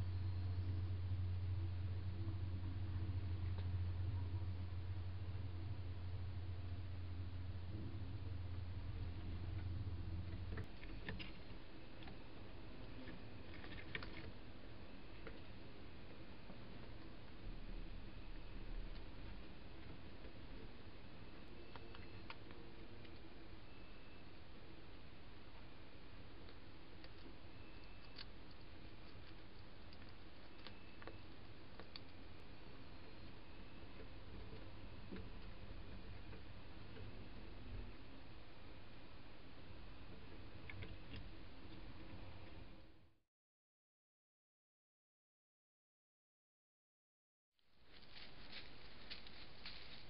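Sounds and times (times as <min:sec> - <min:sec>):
low hum: 0:00.0 - 0:43.2
faint clicks and scratches: 0:07.7 - 0:38.4, 0:39.9 - 0:42.8, 0:47.9 - 0:50.0
dormouse ticks and clicks on wood: 0:26.4 - 0:32.2
microphone hiss: 0:47.7 - 0:50.0.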